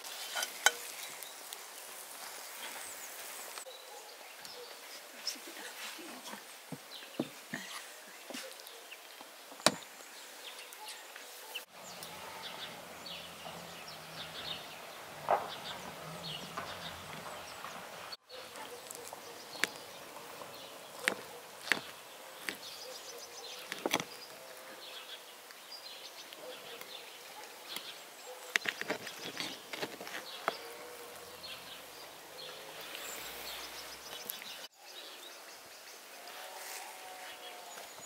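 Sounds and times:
cutlery clinking on ceramic plates: 0.3s - 0.9s.

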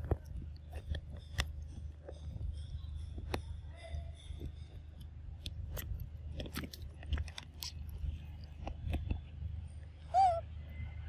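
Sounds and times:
low steady rumble: 0.0s - 11.0s
macaque squealing: 10.1s - 10.4s.

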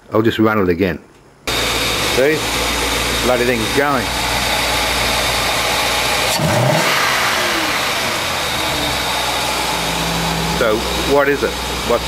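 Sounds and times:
car engine revving and idling: 1.5s - 12.0s.

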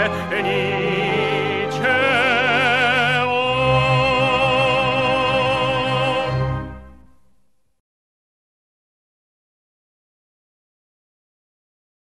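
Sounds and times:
operatic singer with wide vibrato: 0.0s - 7.0s.

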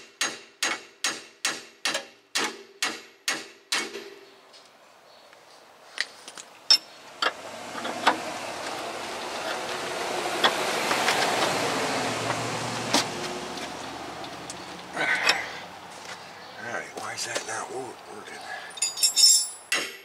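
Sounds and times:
car passing: 6.9s - 18.9s
metal clinks of hand tools: 18.7s - 19.7s.

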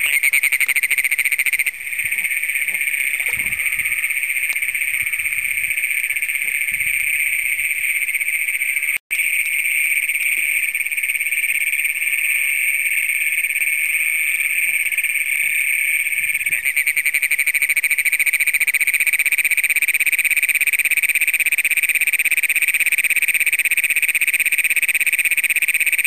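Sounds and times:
nearby toad trill: 0.0s - 7.4s
toads trilling in chorus: 0.0s - 9.0s.

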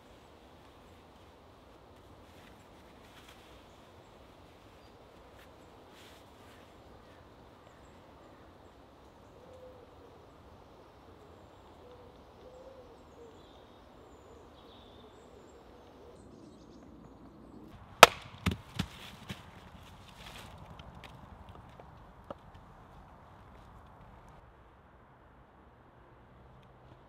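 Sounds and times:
faint bird calls: 2.2s - 17.6s
axe knocking on wooden stump: 18.0s - 19.0s.

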